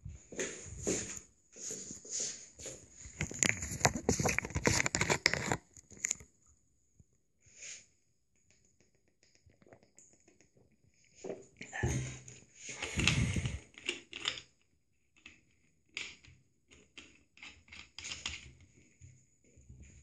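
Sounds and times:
crackling and rustling on microphone: 0.0s - 6.3s, 8.7s - 13.8s.

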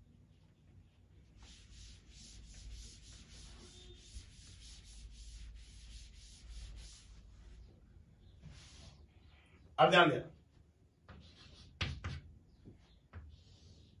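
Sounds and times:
rubbing strokes on writing board: 1.2s - 7.7s, 8.4s - 9.2s, 11.1s - 12.2s, 12.8s - 14.0s.

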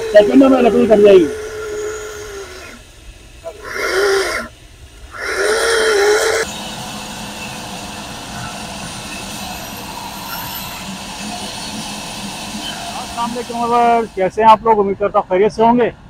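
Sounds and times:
electric chainsaw cutting log: 0.0s - 2.9s, 3.5s - 6.6s
band saw cutting log: 0.0s - 14.2s.

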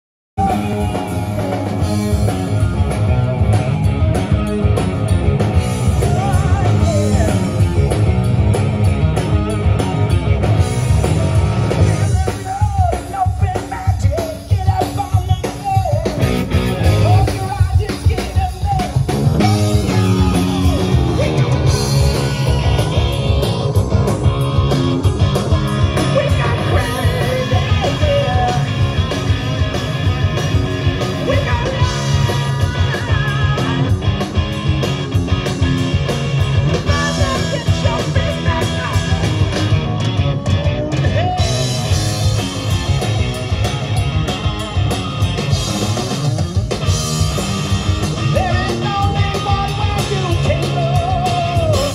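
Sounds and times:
bending electric guitar lines: 0.4s - 13.6s, 14.2s - 51.9s
live rock band: 0.4s - 51.9s
person singing: 5.8s - 7.7s, 11.8s - 22.9s, 26.0s - 29.1s, 31.0s - 34.0s, 36.8s - 39.7s, 48.2s - 51.9s.

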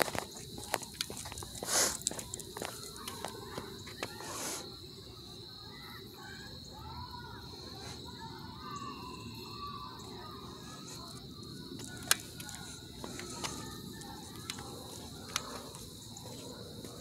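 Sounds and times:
crickets chirring: 0.0s - 17.0s
low outdoor background noise: 0.0s - 17.0s
sharp clicks: 11.8s - 12.6s.

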